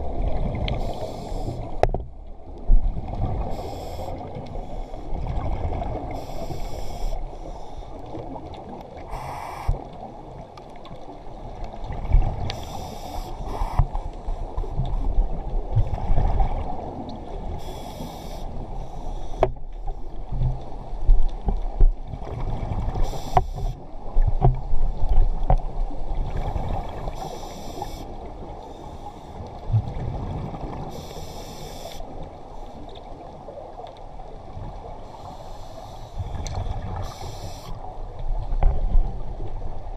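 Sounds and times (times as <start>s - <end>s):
low rumble of water: 0.0s - 39.9s
exhaled bubbles hissing: 0.2s - 1.8s, 3.2s - 7.6s, 9.0s - 9.9s, 12.2s - 13.9s, 17.5s - 19.4s, 22.8s - 23.8s, 26.3s - 29.4s, 30.0s - 32.1s, 35.1s - 37.9s.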